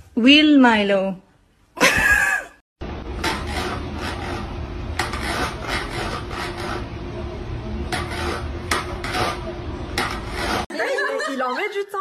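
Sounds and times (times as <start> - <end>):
steady low hum: 2.8 - 10.7
plastic bowl scraping: 10.0 - 10.7.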